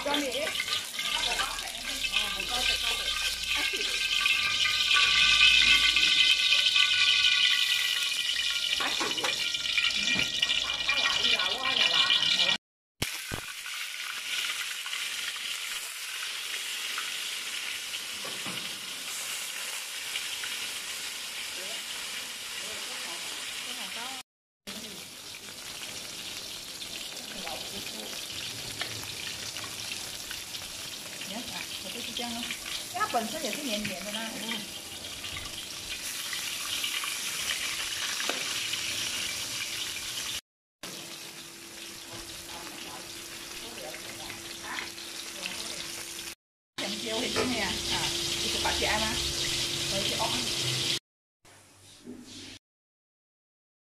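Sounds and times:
metal turner clinking wok: 0:00.0 - 0:12.6
fish sizzling in hot oil: 0:00.0 - 0:51.0.

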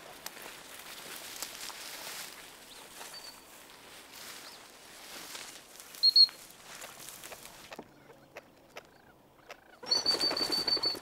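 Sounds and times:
footsteps rustling through dry grass: 0:00.0 - 0:07.7.

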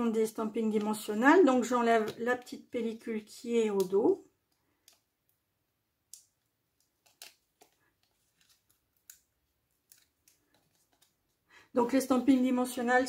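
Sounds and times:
paper label handled: 0:06.1 - 0:11.4.

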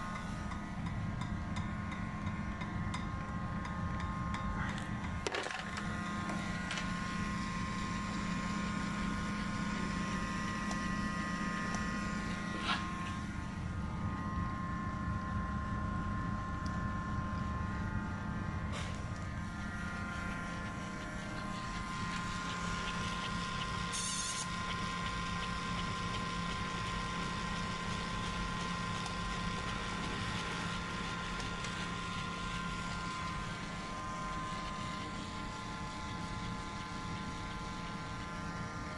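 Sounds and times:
small electric motor whining: 0:19.2 - 0:38.7.

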